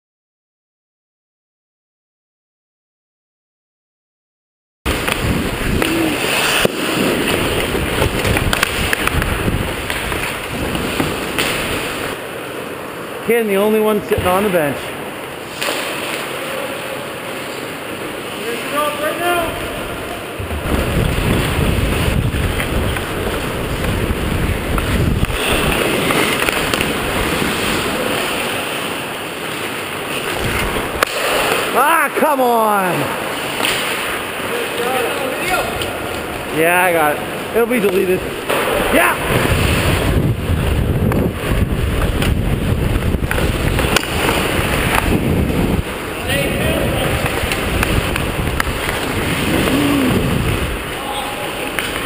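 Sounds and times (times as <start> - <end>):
wind on microphone: 4.9 - 12.2, 19.5 - 28.5, 38.7 - 51.0.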